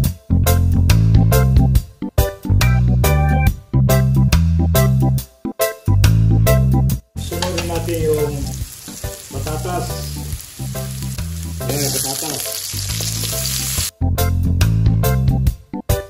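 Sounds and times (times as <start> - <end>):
background music with bass line: 0.0 - 16.0
vegetables sizzling in oil: 7.2 - 13.9.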